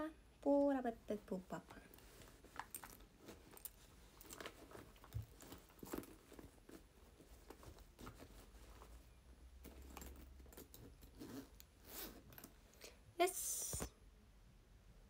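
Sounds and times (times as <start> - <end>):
small objects clicking and rustling: 1.9 - 8.9, 9.6 - 12.8.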